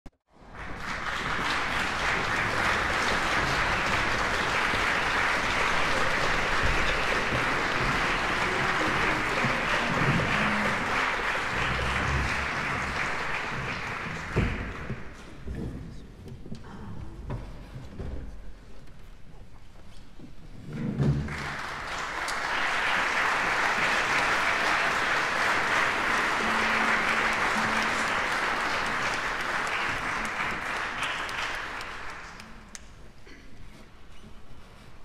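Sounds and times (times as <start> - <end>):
audience applauding: 0.3 - 15.2, 21.2 - 33.0.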